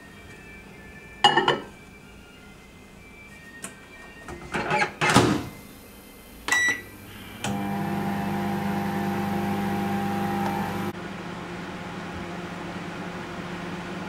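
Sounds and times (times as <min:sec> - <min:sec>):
microwave electrical hum: 0:05.6 - 0:14.0
keypad beep: 0:06.5 - 0:06.8.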